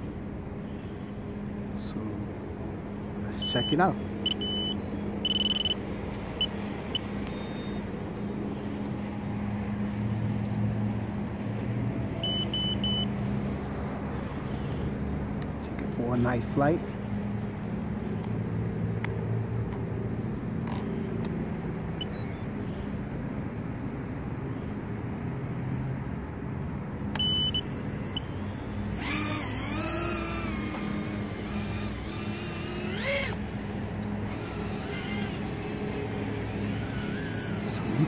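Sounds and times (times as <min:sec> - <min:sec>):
drone motors humming: 0:00.0 - 0:13.1, 0:27.0 - 0:38.0
drone motor whine: 0:06.4 - 0:07.8, 0:27.2 - 0:33.5, 0:34.1 - 0:38.0.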